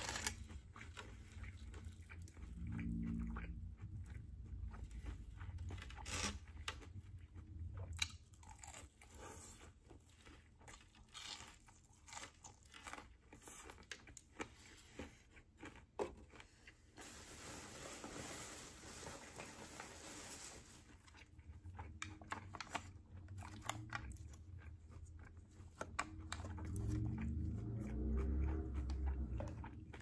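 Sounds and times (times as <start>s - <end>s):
crunchy chewing: 0.0s - 17.0s, 20.8s - 30.0s
soft rustling: 17.0s - 21.1s.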